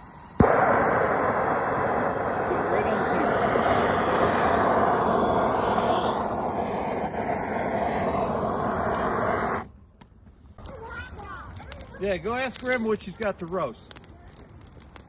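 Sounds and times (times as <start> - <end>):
gas torch hissing: 0.0 - 9.7.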